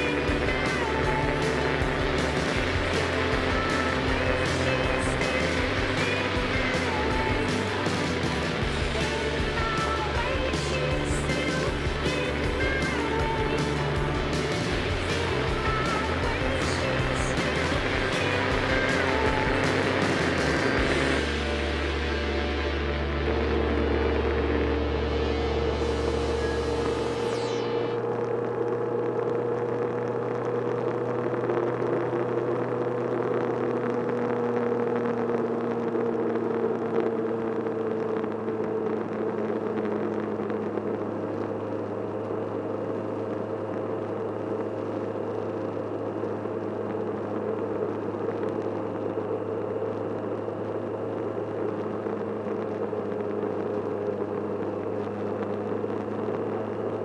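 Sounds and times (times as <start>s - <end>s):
motorcycle engine hum: 0.0s - 57.0s
wind and road noise: 0.0s - 57.0s.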